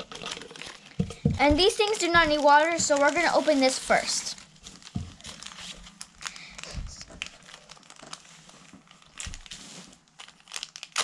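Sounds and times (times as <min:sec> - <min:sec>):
plastic packets tearing open: 0:00.0 - 0:01.0, 0:01.6 - 0:11.0
plastic packets crinkling: 0:00.0 - 0:11.0.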